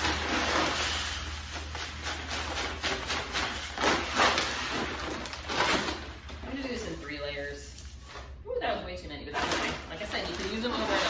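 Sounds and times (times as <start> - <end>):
rice pouring into plastic bucket: 0.0 - 4.7.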